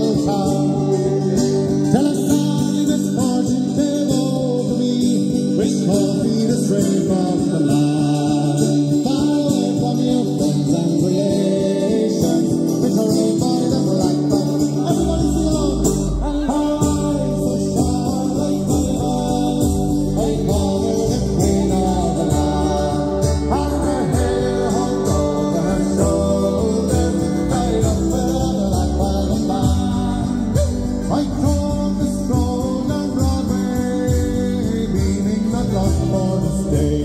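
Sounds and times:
second guitar: 0.0s - 37.0s
strummed acoustic guitar: 0.0s - 37.0s.

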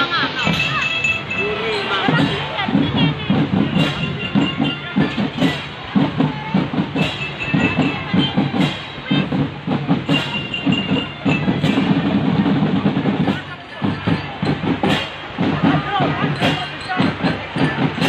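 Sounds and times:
marching drum band playing: 0.0s - 18.0s
bell-lyra notes ringing: 0.3s - 5.6s, 7.0s - 9.1s, 10.1s - 12.1s.

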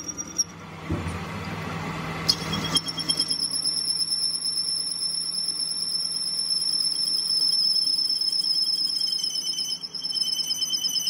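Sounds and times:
metal lathe cutting whine: 2.2s - 11.0s.

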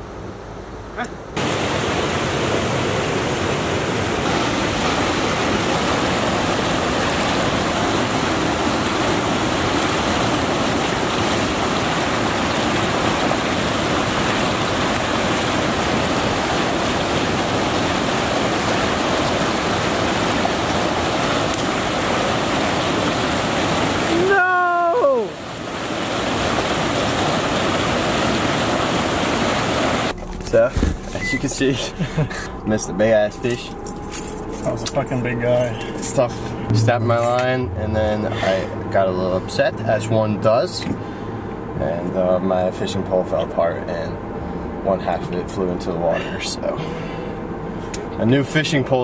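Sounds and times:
river water rushing: 1.4s - 31.8s.

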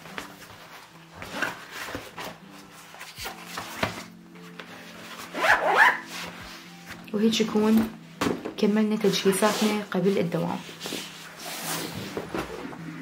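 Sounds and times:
soft background music: 0.0s - 13.0s
fabric rustling and light knocks: 6.0s - 12.8s.

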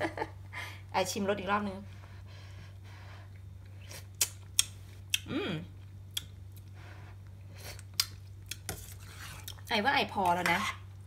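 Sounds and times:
lip smacks and clicks: 4.2s - 5.2s
person humming mm: 5.2s - 5.7s.

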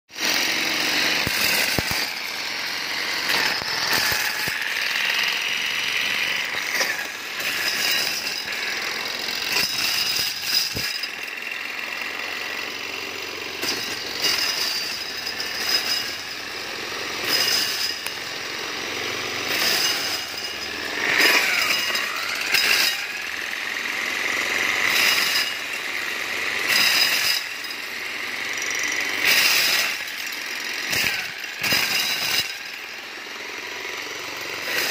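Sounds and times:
milling machine rattling: 0.2s - 34.9s.

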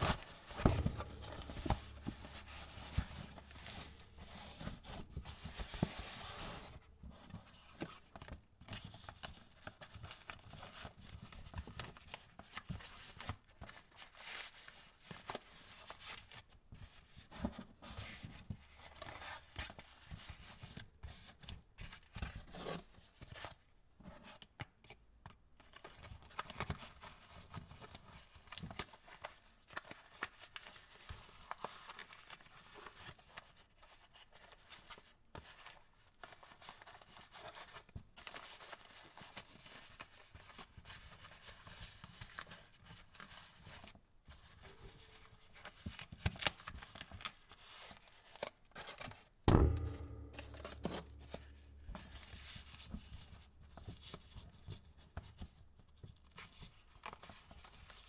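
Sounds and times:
fabric rustling and crinkling: 0.0s - 11.4s.

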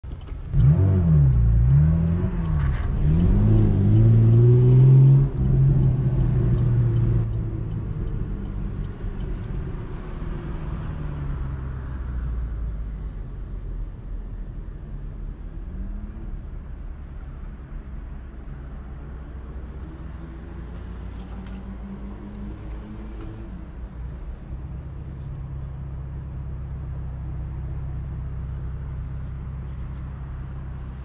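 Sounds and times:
car engine revving: 0.3s - 12.2s.

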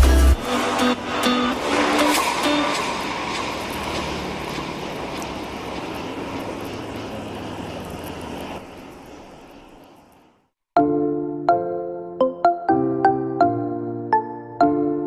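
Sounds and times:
busy road traffic rumble: 0.0s - 10.6s.

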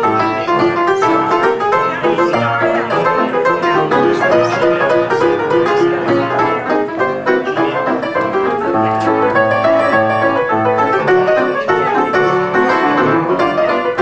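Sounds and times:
ragtime piano: 0.0s - 14.0s.

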